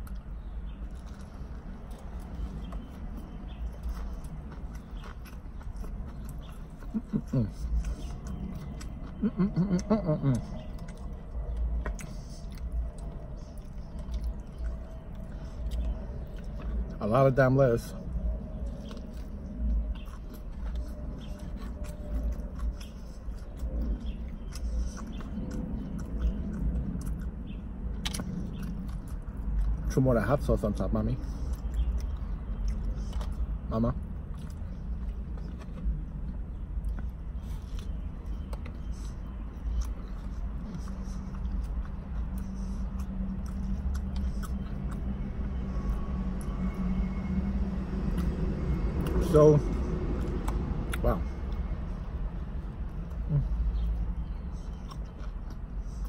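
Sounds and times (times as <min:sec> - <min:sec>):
person chewing food: 0:00.0 - 0:30.0, 0:31.1 - 0:56.0
low rumble: 0:00.0 - 0:55.8
steady low hum: 0:00.0 - 0:56.0
wet mouth clicks and smacks: 0:18.1 - 0:29.9, 0:39.6 - 0:46.6, 0:50.1 - 0:51.7.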